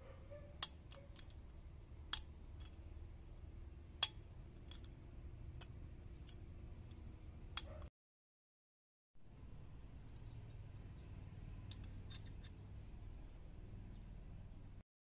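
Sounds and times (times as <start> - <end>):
low steady hum: 0.0 - 7.9, 9.2 - 14.8
pliers clicking on metal: 0.6 - 1.4, 2.1 - 2.8, 4.0 - 4.9.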